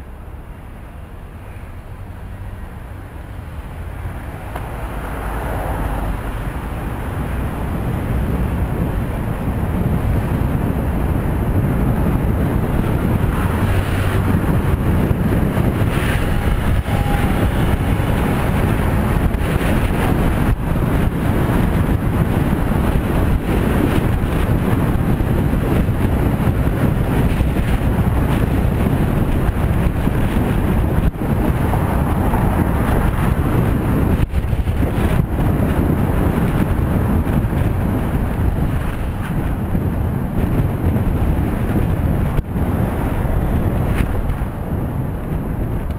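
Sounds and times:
road traffic: 0.0 - 45.9
wind buffeting microphone: 2.0 - 45.9.

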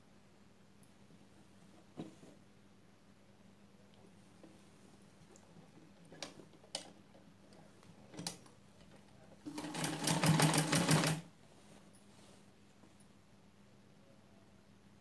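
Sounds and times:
sewing machine stitching: 9.4 - 11.3.

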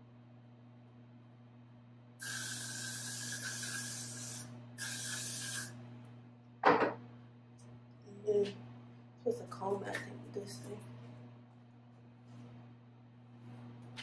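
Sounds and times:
aerosol spray hissing: 2.2 - 5.7.

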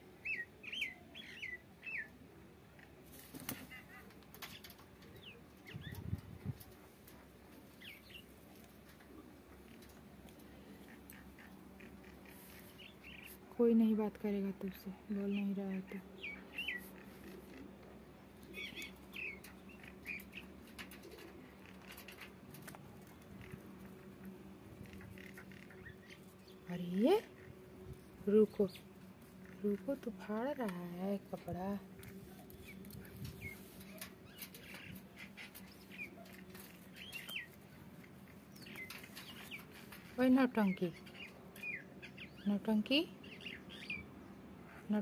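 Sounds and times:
steady low hum: 4.0 - 45.0
claws clicking on wire cage: 20.2 - 23.6.

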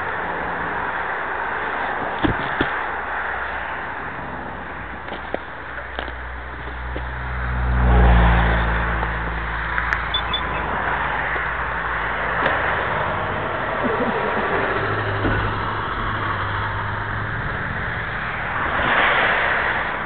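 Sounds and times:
vehicle passing: 6.1 - 20.0.

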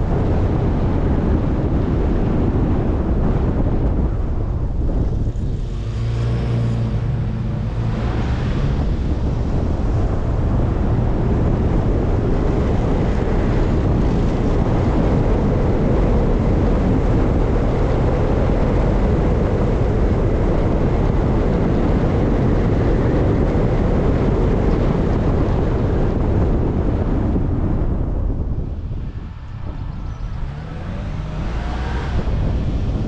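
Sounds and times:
vehicle road noise: 0.0 - 33.0
wind on microphone: 0.0 - 33.0.

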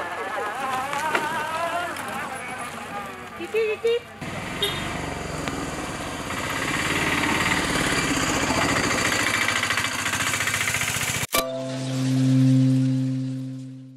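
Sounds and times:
rickshaw engine chattering: 0.0 - 11.3
steady electronic tone: 11.3 - 13.9.

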